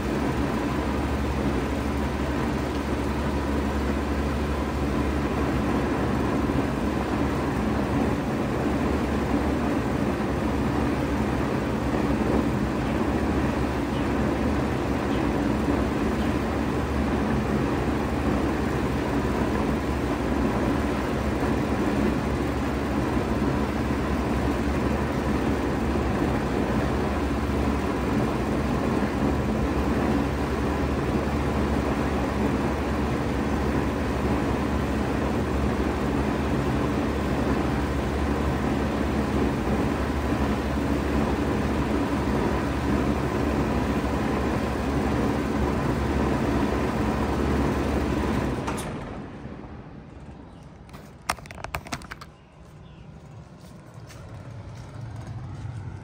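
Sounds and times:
fan moving air: 0.0s - 56.0s
heat pump compressor hum: 0.0s - 56.0s.

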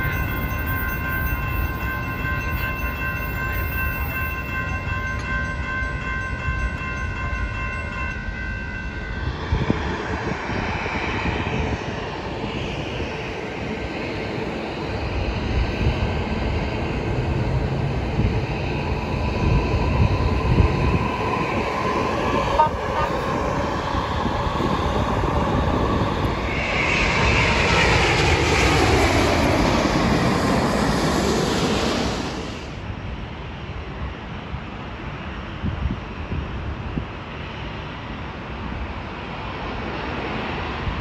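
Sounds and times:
jet aircraft engine noise: 0.0s - 5.3s, 9.2s - 41.0s
light-rail train rumbling past: 0.0s - 41.0s
passenger train rumble with high tones: 0.0s - 41.0s.

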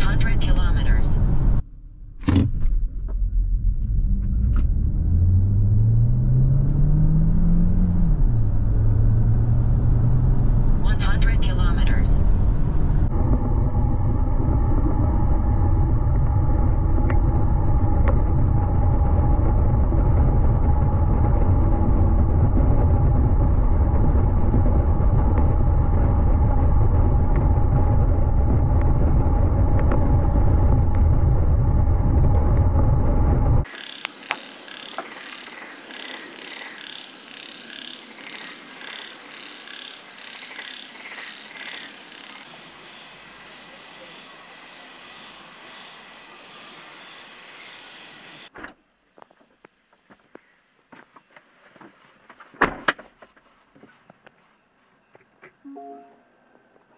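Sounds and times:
tyres rumbling on road: 0.0s - 43.4s
wind buffeting: 12.2s - 33.7s
frogs calling in chorus: 33.7s - 48.5s.

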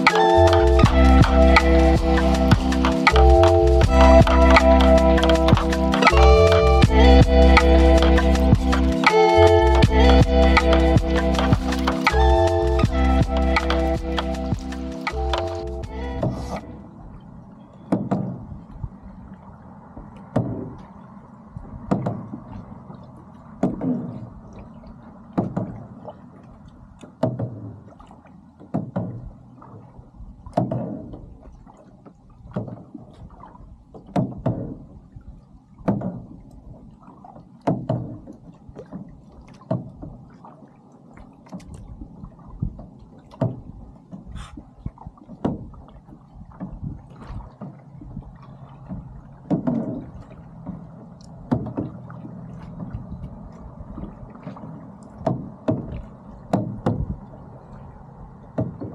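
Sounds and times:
low rumble: 0.0s - 27.0s, 41.7s - 58.9s
water slapping boat hull: 0.0s - 58.9s.

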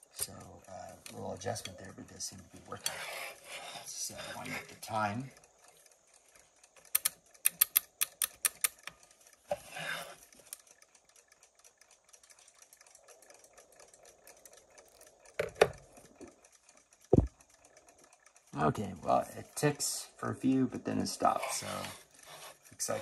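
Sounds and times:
alarm clock winding ratchet clicks: 0.0s - 23.0s
clock ticking: 0.0s - 23.0s
clock knocking when set down: 15.3s - 16.3s, 17.1s - 17.4s.

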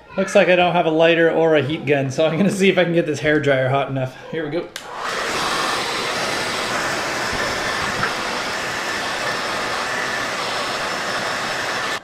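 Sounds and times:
hair dryer running: 4.8s - 12.0s.

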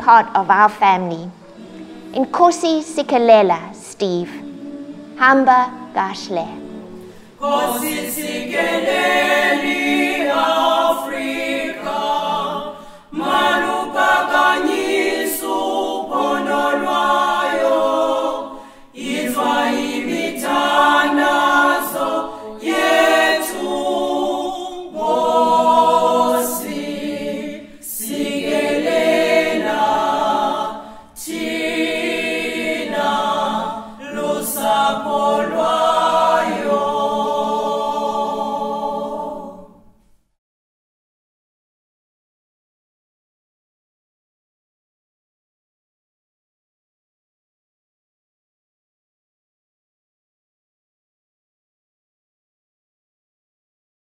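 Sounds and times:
a cappella choir singing: 0.0s - 40.2s.

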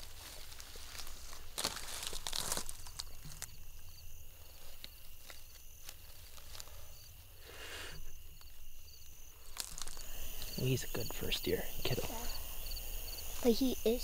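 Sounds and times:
rustle of dry corn stalks: 0.0s - 11.0s
insects chirping: 0.0s - 14.0s.

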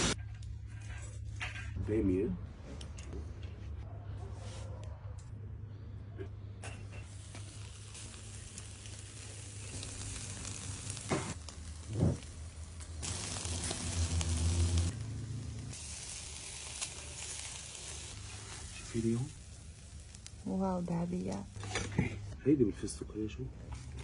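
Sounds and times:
meat skewers sizzling on grill: 6.9s - 22.1s.

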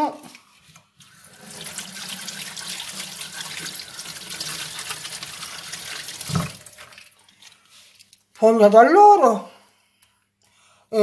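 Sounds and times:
kitchen tap running: 0.8s - 7.5s.

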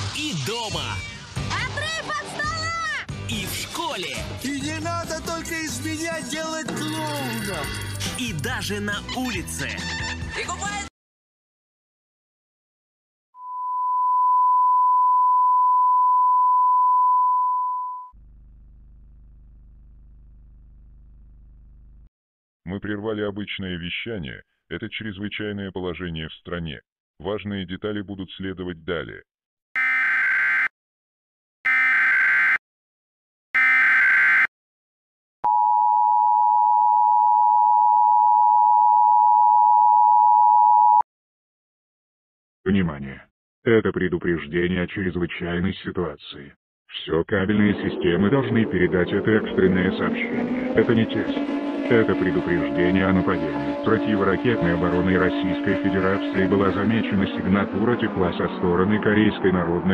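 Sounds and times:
television test tone: 13.4s - 18.2s, 35.5s - 41.0s
low even buzz: 18.2s - 22.1s.

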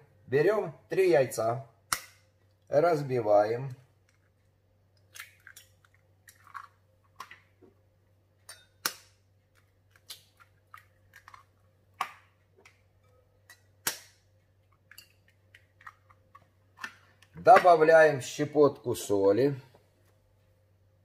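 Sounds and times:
knife cracking eggshells: 5.0s - 6.8s, 8.5s - 12.8s.

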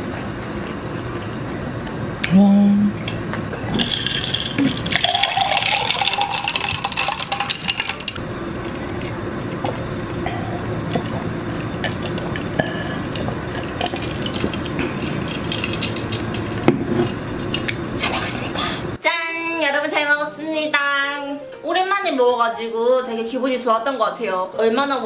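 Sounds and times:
person drinking: 2.9s - 19.0s
ice clinking: 3.6s - 18.2s
water pouring into plastic cup: 3.7s - 9.1s.

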